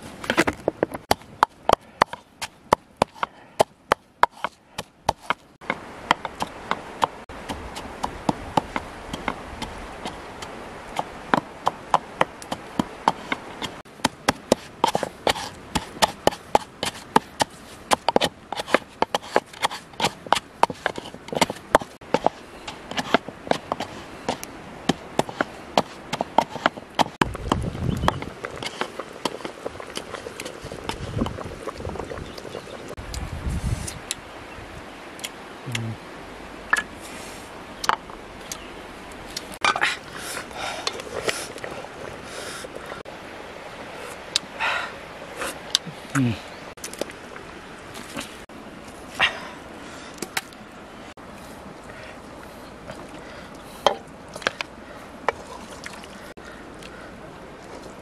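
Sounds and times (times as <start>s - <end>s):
pestle pounding in a mortar: 1.1s - 23.9s
low steady hiss: 32.3s - 58.0s.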